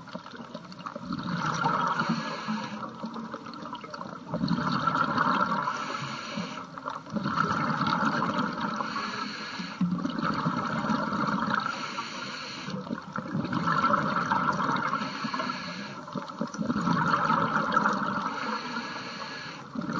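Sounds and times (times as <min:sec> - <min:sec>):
underwater bubbling: 0:00.0 - 0:19.9
diver breathing through regulator: 0:01.9 - 0:02.9, 0:05.6 - 0:06.7, 0:08.8 - 0:09.8, 0:11.6 - 0:12.8, 0:14.9 - 0:16.1, 0:18.2 - 0:19.7.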